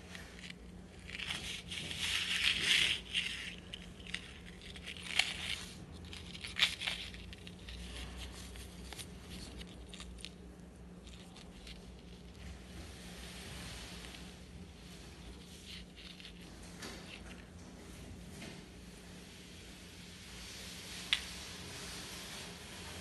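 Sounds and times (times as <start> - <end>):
paper bag crinkling: 0.0 - 12.3
faint low hum: 0.0 - 23.0.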